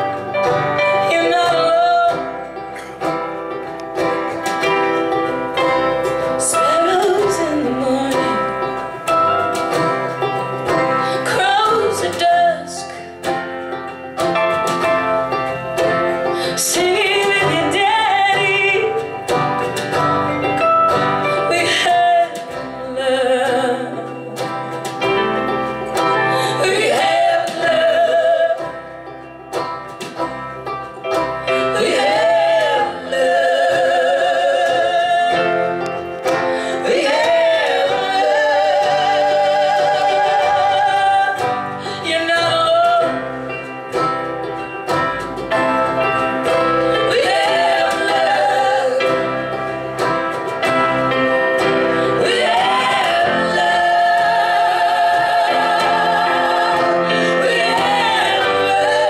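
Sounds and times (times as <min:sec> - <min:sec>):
folk band playing: 0:00.0 - 0:59.0
woman singing: 0:00.8 - 0:02.6, 0:06.4 - 0:09.0, 0:10.8 - 0:13.3, 0:16.4 - 0:20.0, 0:21.2 - 0:24.5, 0:26.0 - 0:29.0, 0:31.5 - 0:43.7, 0:46.4 - 0:49.6, 0:51.6 - 0:59.0.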